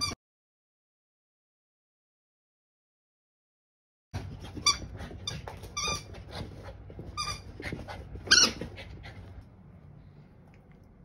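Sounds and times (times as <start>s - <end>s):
dog squeaking: 4.6s - 6.2s, 7.2s - 8.7s.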